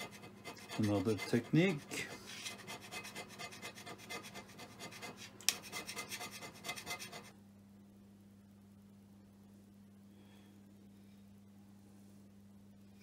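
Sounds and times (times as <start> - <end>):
hand scraper scraping metal: 0.0 - 7.3.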